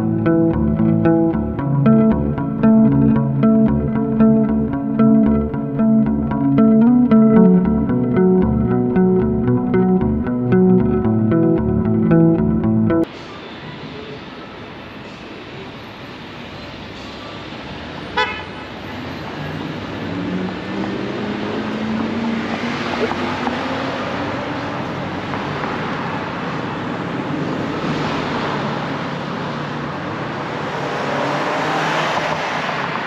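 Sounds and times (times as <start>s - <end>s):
road noise of passing cars: 0.0s - 33.0s
car horn toot: 18.2s - 18.5s.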